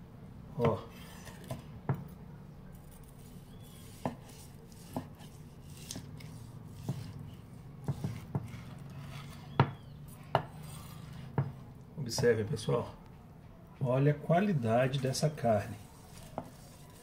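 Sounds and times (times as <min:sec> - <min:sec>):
knife slicing meat: 0:02.7 - 0:11.8, 0:14.8 - 0:17.0
knife knocking cutting board: 0:07.8 - 0:08.6.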